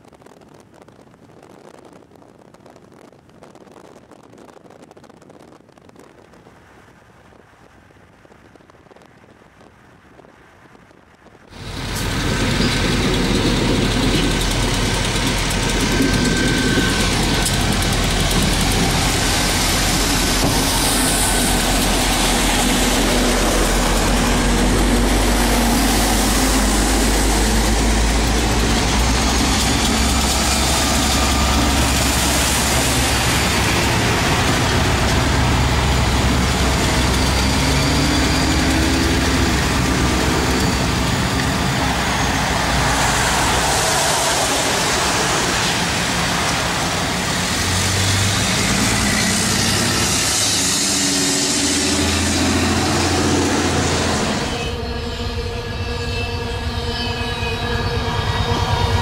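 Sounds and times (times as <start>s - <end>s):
diesel locomotives rumbling past: 11.5s - 59.0s
traffic hiss on wet road: 18.9s - 54.5s.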